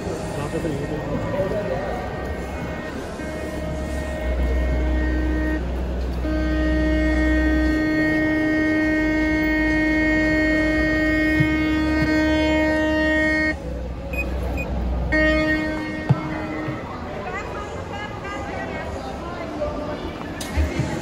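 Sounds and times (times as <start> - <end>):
steady single-pitched tone: 0.3 - 17.0.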